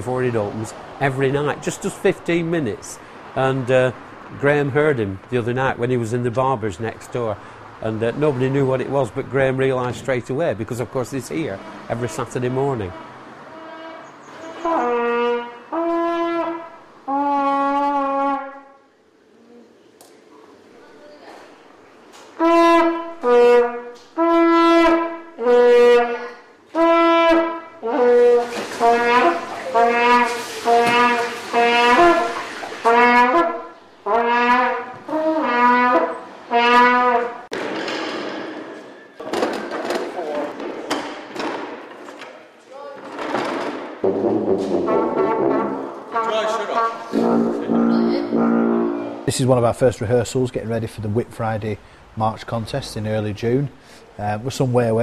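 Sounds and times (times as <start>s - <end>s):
brass instrument long notes: 11.4s - 18.9s, 22.4s - 37.5s, 44.0s - 49.3s
stacking chairs knocking: 36.8s - 42.4s, 43.0s - 46.0s.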